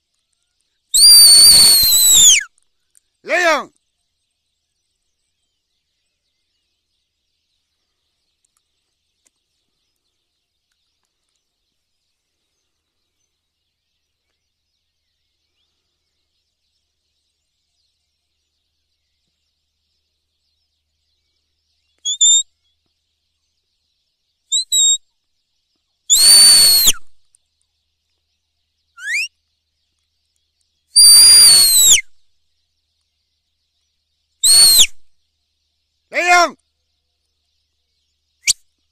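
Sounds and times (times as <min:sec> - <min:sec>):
high whistled calls: 0:00.9 - 0:02.5, 0:22.0 - 0:22.4, 0:24.5 - 0:25.0, 0:26.1 - 0:27.1, 0:29.0 - 0:29.3, 0:31.0 - 0:32.1, 0:34.4 - 0:35.1.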